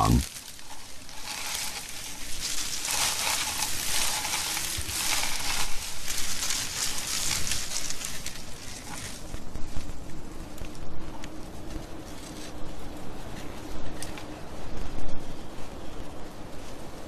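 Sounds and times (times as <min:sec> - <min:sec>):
leaves and twigs crackling: 0:00.0 - 0:17.0.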